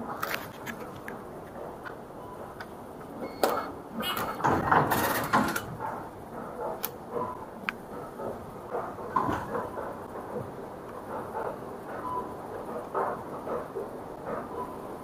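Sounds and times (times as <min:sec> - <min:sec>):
turnstile paddles sliding open: 0:03.3 - 0:05.8.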